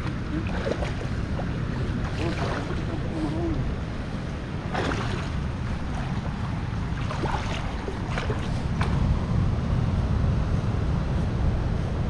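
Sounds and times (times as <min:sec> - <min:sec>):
feet wading through shallow water: 0:00.0 - 0:09.2
wind buffeting microphone: 0:00.0 - 0:12.0.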